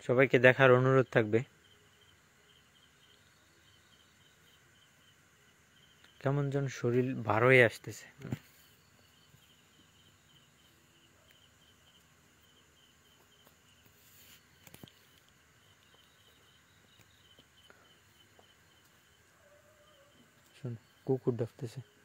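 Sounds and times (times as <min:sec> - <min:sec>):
night insects chirping: 0:00.0 - 0:22.0
faint clicks: 0:14.6 - 0:16.2.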